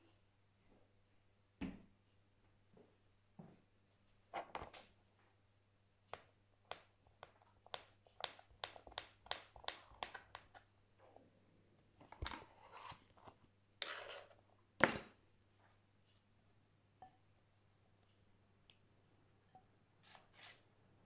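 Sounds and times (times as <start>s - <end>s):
knife chopping vegetables: 6.1s - 10.6s
knife scraping cutting board: 12.3s - 14.4s, 20.0s - 20.7s.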